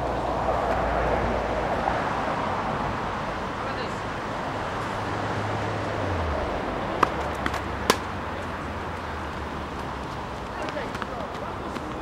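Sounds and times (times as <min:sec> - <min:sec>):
tennis ball pops: 0:07.0 - 0:08.1.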